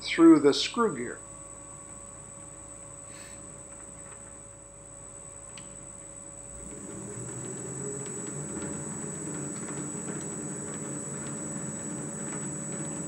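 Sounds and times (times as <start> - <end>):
lathe humming: 6.4 - 13.0.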